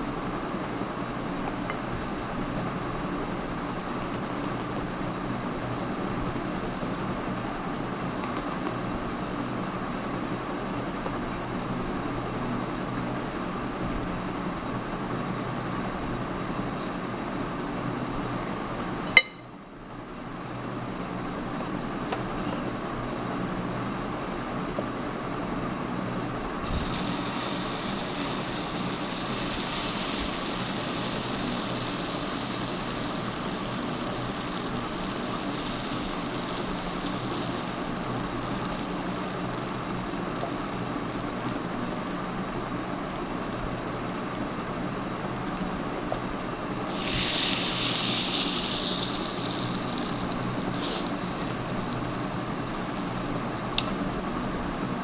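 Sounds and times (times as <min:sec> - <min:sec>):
steady background hum: 0:00.0 - 0:55.0
batter sizzling on hot plates: 0:26.6 - 0:54.3.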